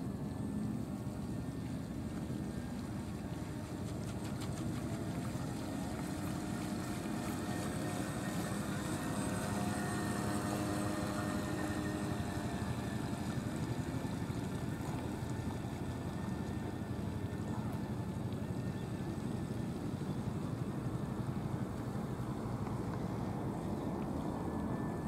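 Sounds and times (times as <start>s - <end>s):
boat hull wash through water: 0.0s - 25.0s
electric motor whine: 4.8s - 16.0s.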